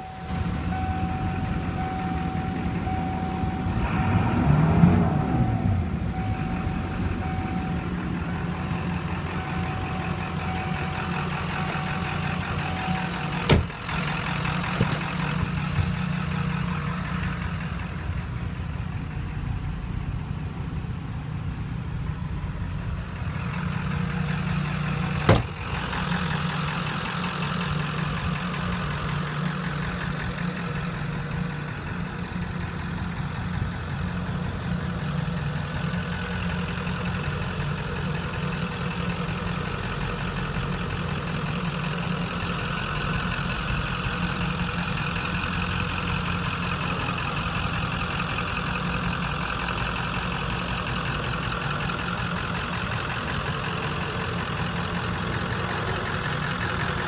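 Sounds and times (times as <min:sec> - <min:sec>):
steady high tone: 0:00.0 - 0:13.5
diesel engine idling and revving: 0:00.0 - 0:57.0
door slamming shut: 0:13.4 - 0:13.8, 0:25.3 - 0:25.6.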